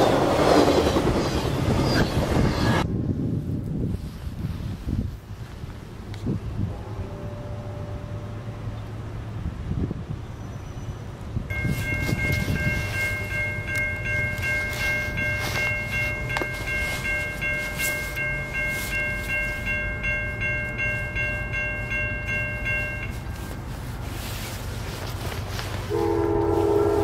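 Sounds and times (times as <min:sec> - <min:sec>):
crossing bell ringing fast: 0:11.5 - 0:23.8.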